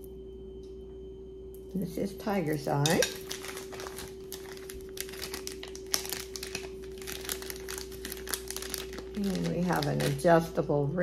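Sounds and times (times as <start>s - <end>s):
faint hum: 0.0s - 11.0s
packaging crinkling: 2.8s - 10.6s.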